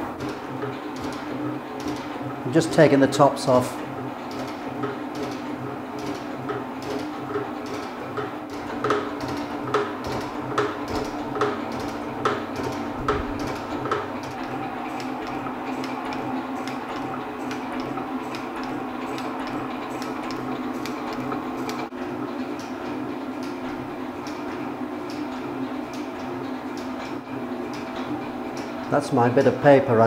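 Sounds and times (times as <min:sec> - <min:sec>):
machine hum: 0:00.0 - 0:30.0
metal shaper ram clicking: 0:08.5 - 0:21.9.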